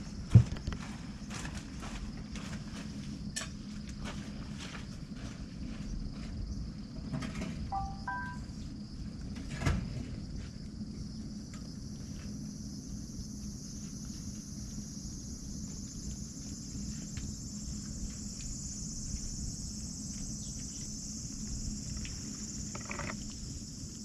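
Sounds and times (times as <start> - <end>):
chorus of insects: 0.0 - 24.0
low steady hum: 7.3 - 24.0.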